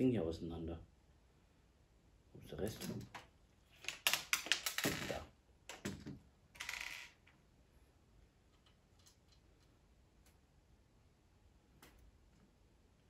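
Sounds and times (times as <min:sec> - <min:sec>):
plastic building parts clicking: 0:02.8 - 0:06.0.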